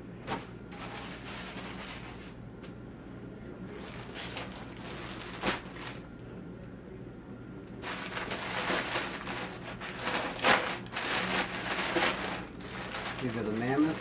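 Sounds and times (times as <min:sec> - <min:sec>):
plastic bag crinkling: 0:03.7 - 0:06.0, 0:07.8 - 0:14.0.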